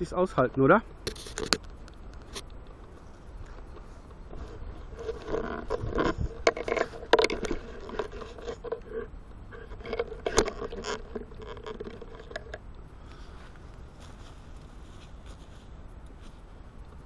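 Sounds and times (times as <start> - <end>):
camera handling noise: 1.0 - 9.0
crunching in dry leaves: 1.1 - 17.0.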